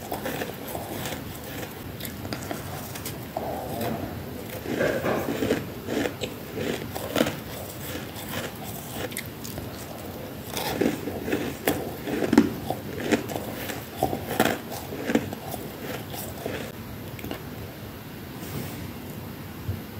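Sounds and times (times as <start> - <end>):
crisp crunches of chewing frost: 0.0 - 16.8.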